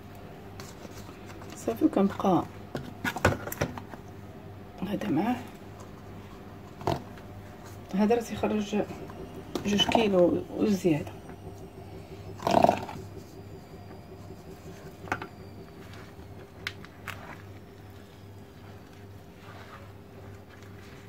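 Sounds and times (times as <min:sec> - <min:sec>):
steady low hum: 0:00.0 - 0:21.0
hands squishing dough: 0:04.8 - 0:21.0.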